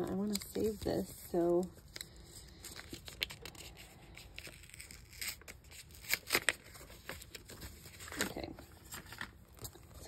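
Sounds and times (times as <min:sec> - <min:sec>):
paper rustling and crinkling: 0:00.0 - 0:10.0
paper ripping: 0:02.7 - 0:09.3.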